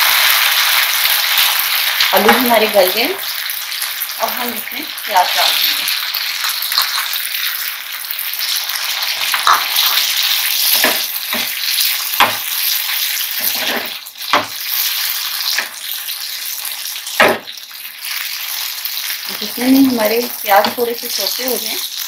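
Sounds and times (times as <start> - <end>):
vegetables sizzling in oil: 0.0 - 22.0
metal spatula knocking pan: 9.3 - 9.9, 10.8 - 11.6, 12.2 - 12.5.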